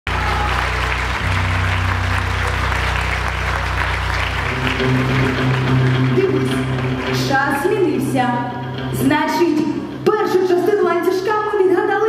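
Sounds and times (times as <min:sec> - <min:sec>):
audience applauding: 0:00.0 - 0:08.8
music with held low notes: 0:00.1 - 0:11.7.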